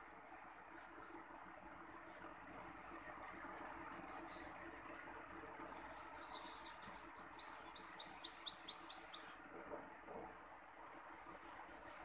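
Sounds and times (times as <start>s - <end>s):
warbler singing high notes: 5.9s - 9.3s.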